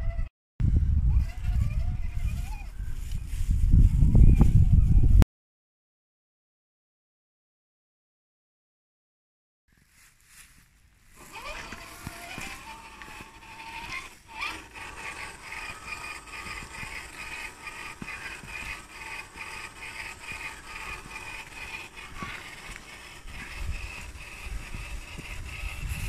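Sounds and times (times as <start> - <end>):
toy car motor whine: 1.1 - 3.5, 11.1 - 26.0.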